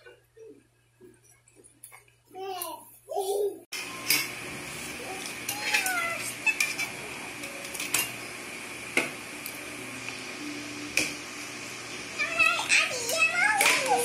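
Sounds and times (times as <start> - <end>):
cutlery clinking against plates: 5.2 - 8.2
high-pitched background tone: 9.4 - 12.7.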